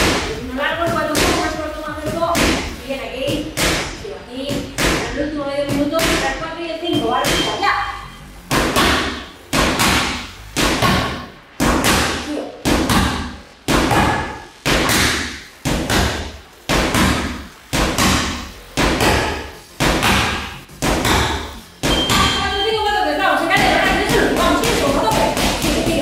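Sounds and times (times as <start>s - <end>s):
boxing gloves hitting heavy bag: 8.5s - 22.4s.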